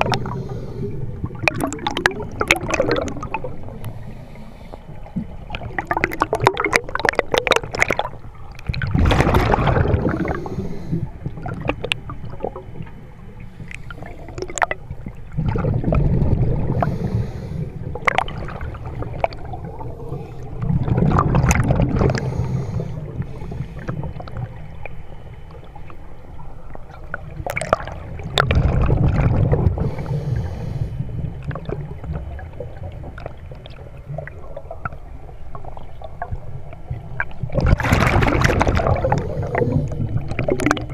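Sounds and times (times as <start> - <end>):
regulator bubbles rumbling: 0.0 - 40.9
small clicks and crackles: 4.7 - 9.5, 10.4 - 16.9, 31.0 - 40.9.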